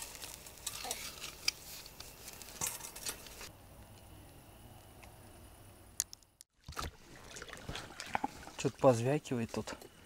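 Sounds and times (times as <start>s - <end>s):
clicks and crackles from grill basket: 0.0s - 3.5s.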